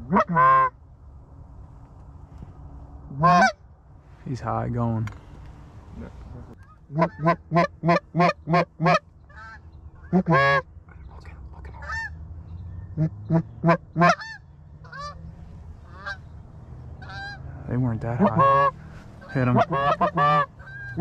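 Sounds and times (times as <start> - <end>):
goose call honks: 0.0 - 0.8, 3.1 - 3.6, 6.0 - 10.7, 11.8 - 12.2, 12.9 - 15.2, 15.8 - 16.3, 17.0 - 21.0
wild geese honking: 0.0 - 0.8, 3.1 - 3.6, 5.9 - 10.7, 11.7 - 21.0.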